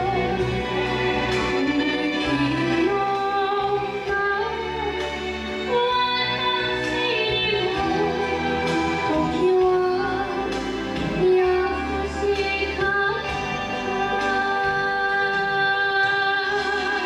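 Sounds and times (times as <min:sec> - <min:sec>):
karaoke backing track: 0:00.0 - 0:17.0
girl singing into a microphone: 0:01.6 - 0:05.0, 0:05.7 - 0:17.0.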